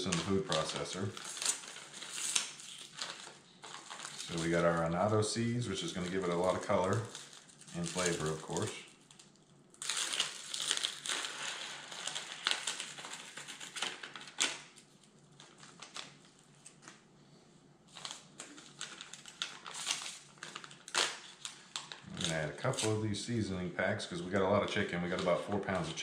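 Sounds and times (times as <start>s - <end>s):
seasoning packets crinkling: 0.0s - 14.4s.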